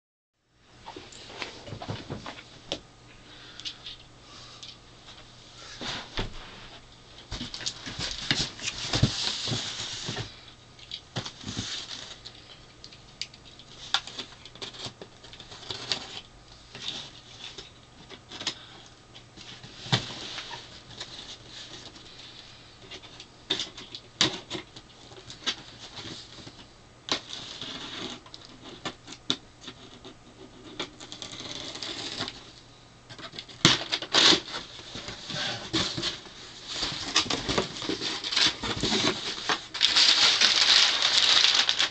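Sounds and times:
packing tape being slit: 0:30.7 - 0:32.4, 0:33.5 - 0:34.7
scratchy rustling: 0:34.0 - 0:41.9.

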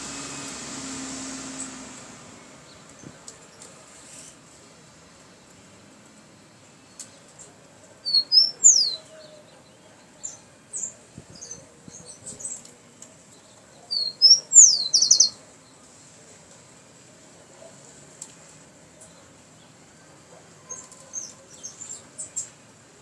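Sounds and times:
sparrow singing: 0:06.4 - 0:15.8, 0:20.6 - 0:22.6.

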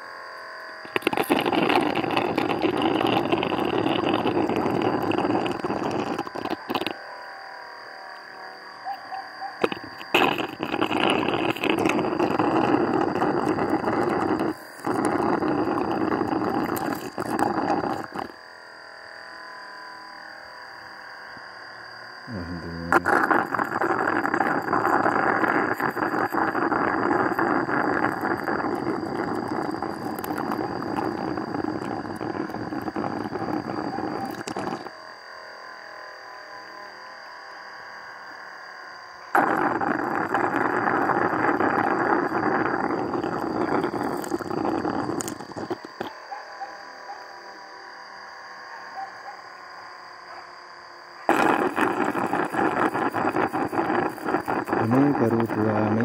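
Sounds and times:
suction hose crackly sucking: 0:00.8 - 0:07.0, 0:09.6 - 0:18.4, 0:22.3 - 0:34.9, 0:39.4 - 0:46.1, 0:51.3 - 0:56.0.

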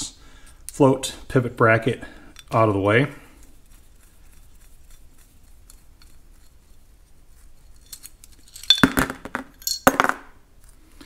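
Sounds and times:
metal parts clattering on workbench: 0:07.8 - 0:10.2.

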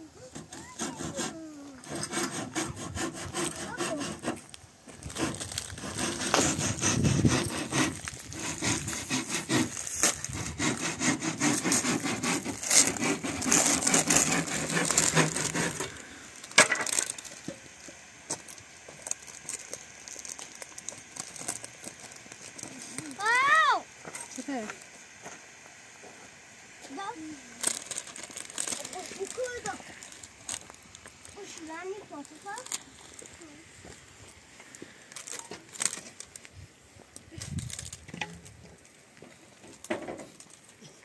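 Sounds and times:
hand saw cutting wood: 0:00.2 - 0:17.6, 0:26.9 - 0:30.7.

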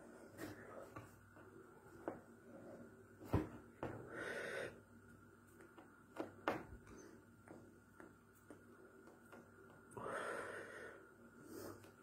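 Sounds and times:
hands tapping and rustling clothing: 0:05.5 - 0:09.9.

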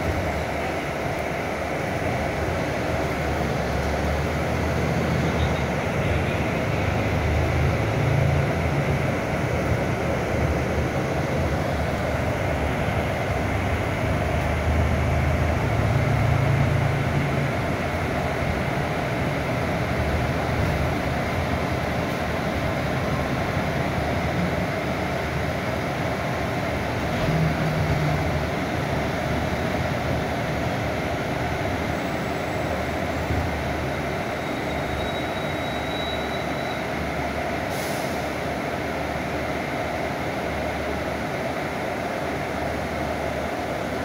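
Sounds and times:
bus diesel engine running: 0:00.0 - 0:44.0
road noise: 0:00.0 - 0:44.0
short high hiss: 0:37.7 - 0:38.4.

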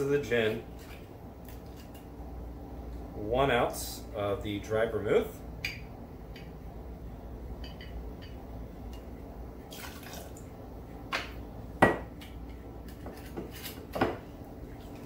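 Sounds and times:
liquid pouring: 0:09.6 - 0:10.5.

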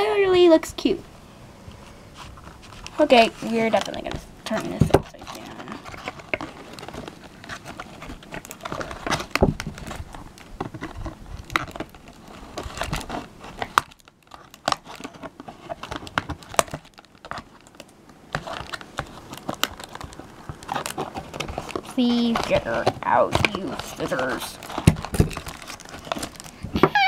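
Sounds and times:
crinkling: 0:01.7 - 0:27.0
scissors cutting cardboard and tape: 0:18.4 - 0:27.0.

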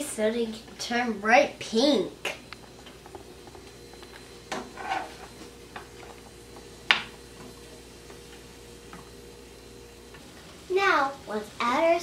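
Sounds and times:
plastic spoon scraping frying pan: 0:04.6 - 0:05.4.

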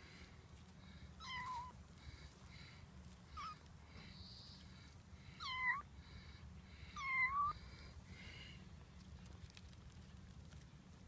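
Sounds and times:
kitten meowing: 0:01.2 - 0:01.8, 0:05.4 - 0:05.8, 0:07.0 - 0:07.6.

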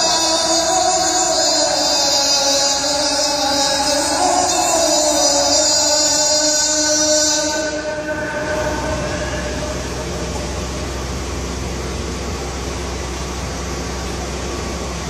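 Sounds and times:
steady hiss with low hum: 0:00.0 - 0:15.0
muezzin's long held note: 0:03.4 - 0:11.8.

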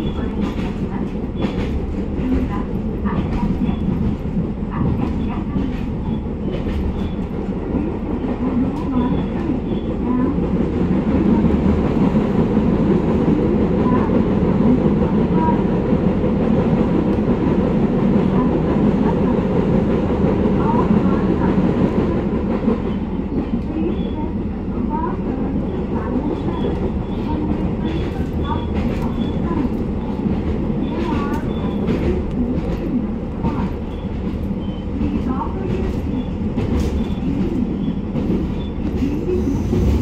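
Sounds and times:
train wheels rumbling on track: 0:00.0 - 0:40.0.

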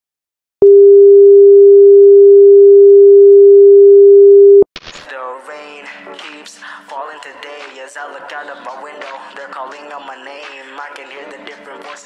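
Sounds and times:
single-pitch test tone: 0:00.6 - 0:04.6
music: 0:05.1 - 0:12.0.

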